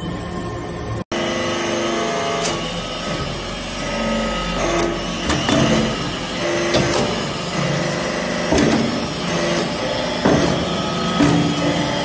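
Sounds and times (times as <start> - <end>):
hydraulic press humming: 0.0 - 12.0
sharp mechanical knock: 8.5 - 10.6.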